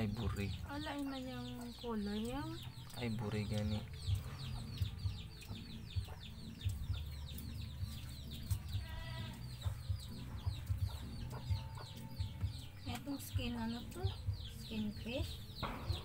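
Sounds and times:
chicks peeping: 0.0s - 16.0s
hen calling: 7.0s - 16.0s.

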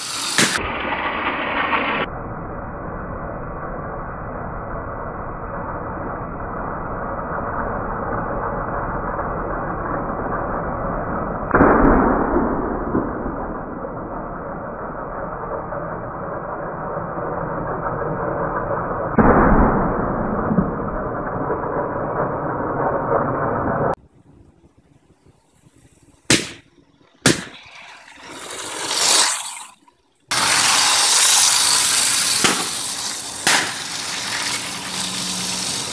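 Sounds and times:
toy train running on wood: 0.0s - 2.1s, 27.6s - 35.9s
balloon pops: 0.3s - 0.6s, 26.3s - 27.7s, 32.4s - 32.8s, 33.4s - 33.8s.

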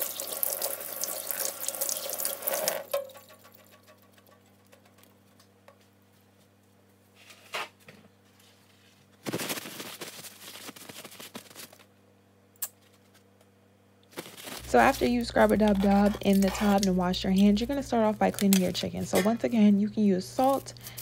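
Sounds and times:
paper towel rustling and crinkling: 8.3s - 11.9s, 14.1s - 17.0s.

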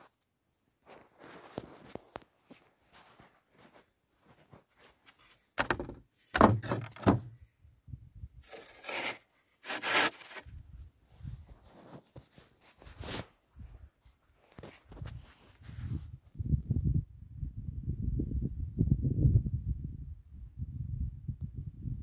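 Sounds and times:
wooden gate knocking open: 5.6s - 7.3s
footsteps crunching in snow: 11.5s - 15.9s.

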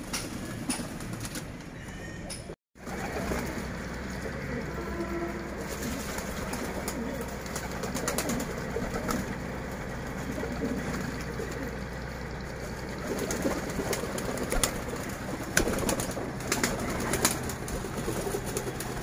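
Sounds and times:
pigeons cooing: 0.1s - 19.0s.

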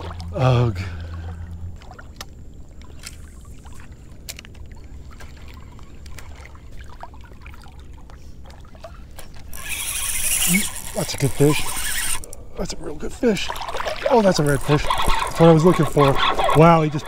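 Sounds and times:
steady low rumble: 0.0s - 6.0s
small clicks and drips: 0.0s - 12.4s
shallow water lapping: 0.0s - 17.0s.

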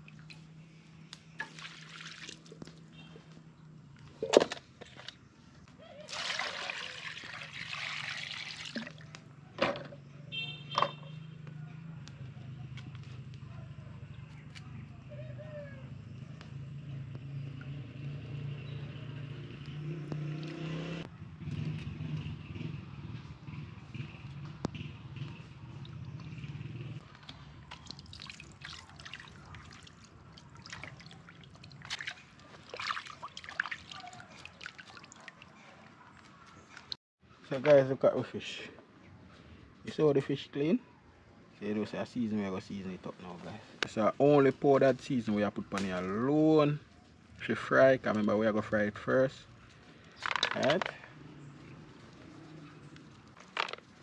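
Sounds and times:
water pouring into a pot: 1.4s - 2.5s, 6.1s - 9.0s
water splashing onto fish: 1.4s - 2.6s, 27.7s - 35.5s.

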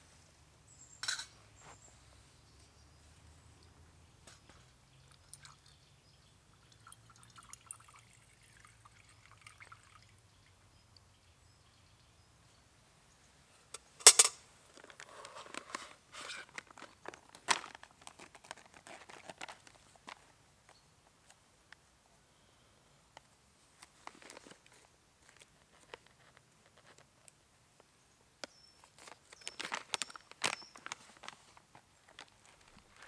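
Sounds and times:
fuel pouring: 6.6s - 10.4s.

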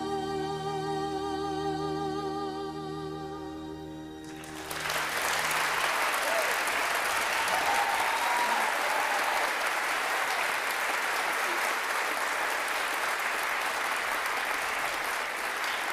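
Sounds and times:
audience applauding: 4.2s - 15.9s.

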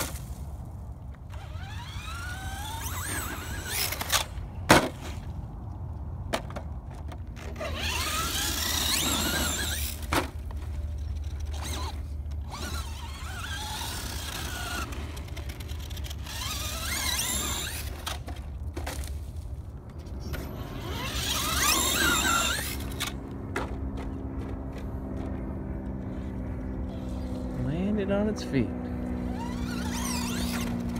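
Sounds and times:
electric motor whining: 1.3s - 4.4s, 7.4s - 10.1s, 11.1s - 18.2s, 20.4s - 23.2s, 29.0s - 30.9s.

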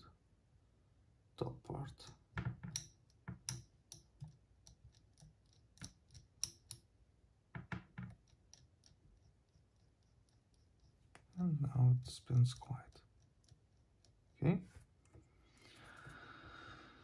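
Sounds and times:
small parts clicking and tapping: 2.0s - 6.9s, 7.6s - 14.4s.

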